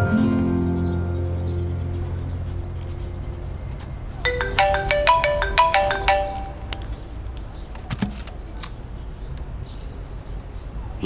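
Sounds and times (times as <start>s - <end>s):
mobile phone ringtone: 4.3s - 6.9s.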